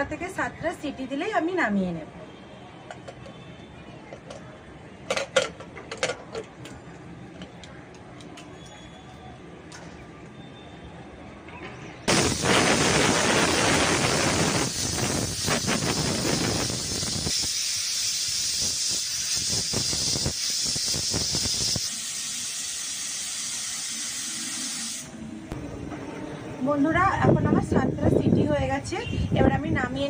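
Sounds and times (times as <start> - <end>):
pressure cooker whistling: 12.1 - 25.1.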